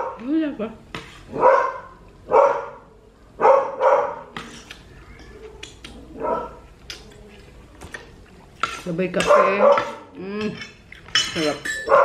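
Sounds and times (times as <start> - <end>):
dog barking: 1.3 - 2.8, 3.4 - 4.3, 6.2 - 6.6, 9.2 - 10.0.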